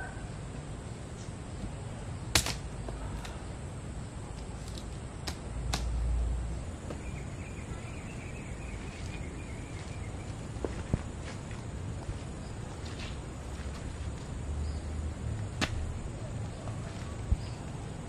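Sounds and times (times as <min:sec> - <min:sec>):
machete chopping bamboo: 0:02.3 - 0:02.6, 0:04.6 - 0:06.0, 0:15.6 - 0:15.8.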